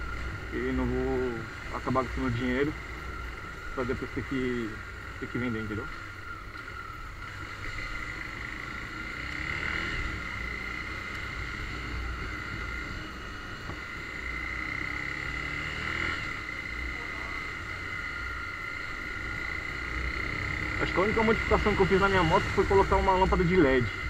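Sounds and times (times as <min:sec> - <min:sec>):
motorcycle engine whining: 0:00.0 - 0:24.0
traffic: 0:00.0 - 0:24.0.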